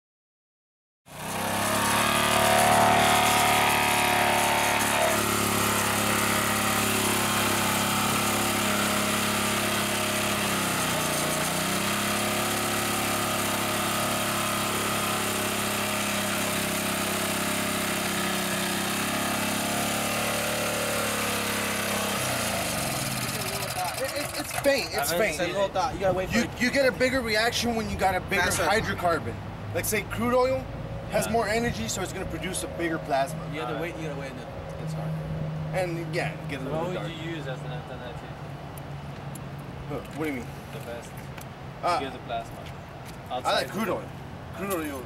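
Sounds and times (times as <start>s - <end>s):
small engine running: 1.1s - 25.4s.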